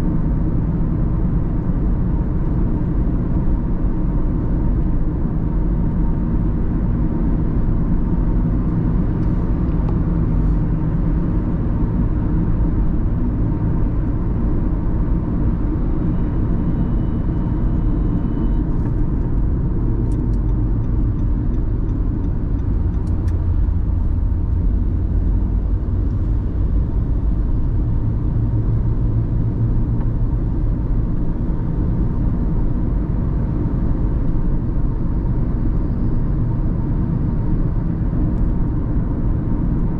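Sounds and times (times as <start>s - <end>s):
car road and engine rumble: 0.0s - 39.9s.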